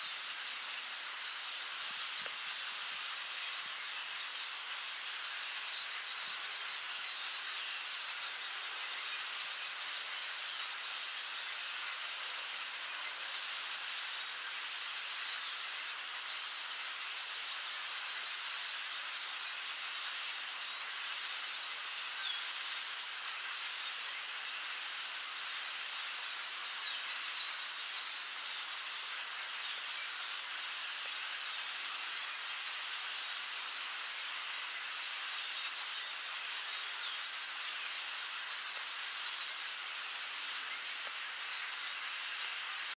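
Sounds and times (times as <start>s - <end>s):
flock of blackbirds calling: 0.0s - 43.0s.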